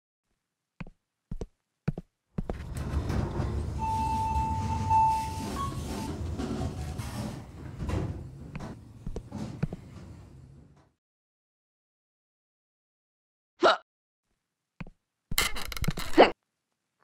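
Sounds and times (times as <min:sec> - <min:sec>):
elevator low hum: 0:02.4 - 0:11.0
sliding elevator doors opening: 0:02.5 - 0:11.0.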